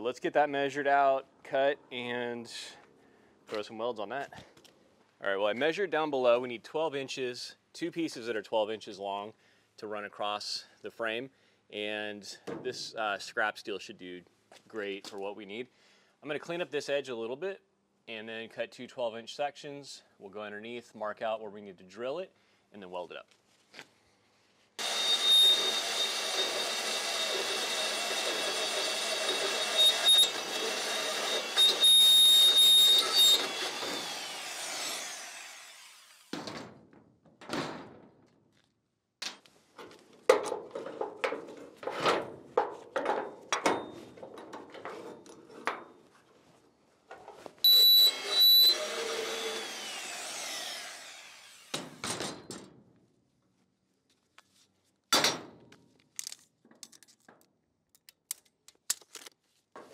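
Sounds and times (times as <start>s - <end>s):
band saw cutting steel: 24.8s - 36.3s, 47.7s - 52.0s.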